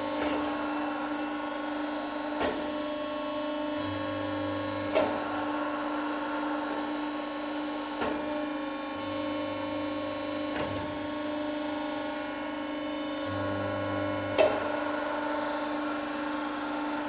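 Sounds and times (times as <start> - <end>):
machine hum: 0.0 - 17.0
deep machine drone: 12.9 - 17.0.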